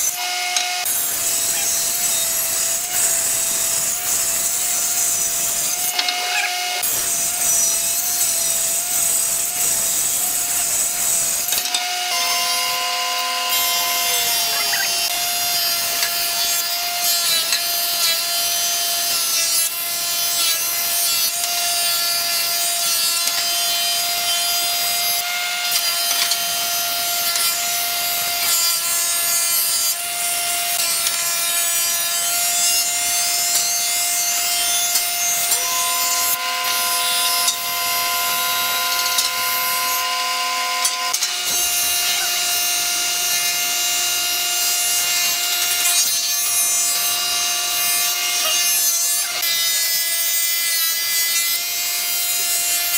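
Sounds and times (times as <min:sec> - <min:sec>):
wood planer cutting boards: 0:00.0 - 0:52.9.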